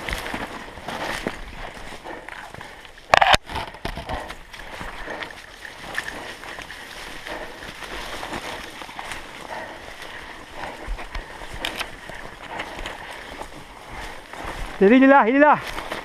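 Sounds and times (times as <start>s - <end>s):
branches rustling and scraping: 0.0s - 16.0s
twigs snapping: 11.0s - 13.5s
footsteps through dry leaves: 12.2s - 16.0s.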